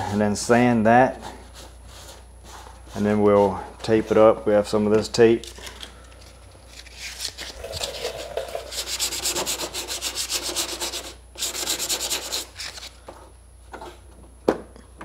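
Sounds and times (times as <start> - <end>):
sandpaper rubbing car door: 8.7 - 12.8.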